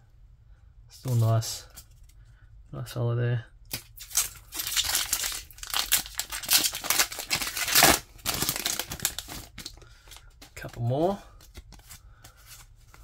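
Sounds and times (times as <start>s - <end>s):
foil wrapper crinkling and tearing: 3.7s - 10.4s.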